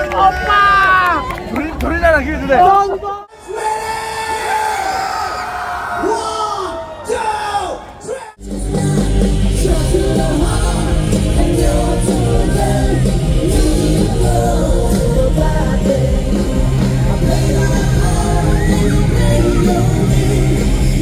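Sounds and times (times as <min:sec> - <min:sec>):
bass line: 0:08.4 - 0:21.0
electric guitars: 0:08.4 - 0:21.0
keyboard: 0:08.4 - 0:21.0
person singing: 0:08.4 - 0:21.0.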